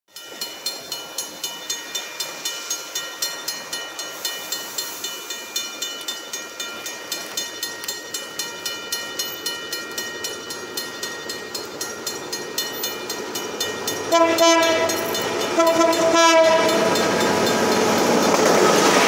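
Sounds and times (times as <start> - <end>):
rain hissing: 1.8 - 6.7
level crossing bell ringing: 5.4 - 17.6.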